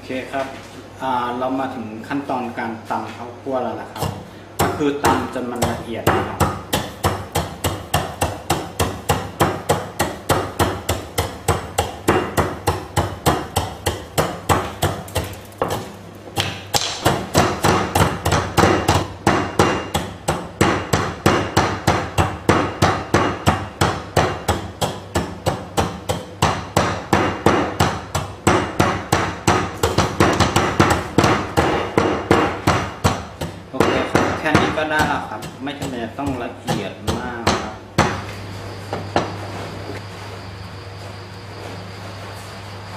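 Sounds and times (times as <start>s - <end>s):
wooden pestle pounding in mortar: 3.9s - 38.3s.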